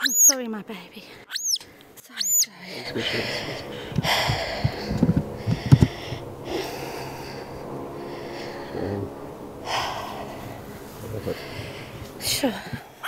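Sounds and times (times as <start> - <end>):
loud breathing: 2.6 - 13.0.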